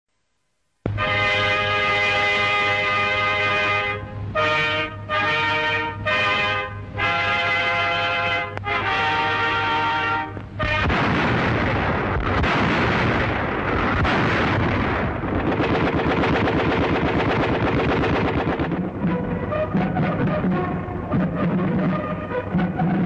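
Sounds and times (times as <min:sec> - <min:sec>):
background music: 0:00.9 - 0:11.1, 0:18.3 - 0:23.0
brass fanfare: 0:00.9 - 0:11.3, 0:18.3 - 0:23.0
gunfire and artillery fire: 0:10.6 - 0:23.0
machine-gun rattle: 0:15.4 - 0:18.8.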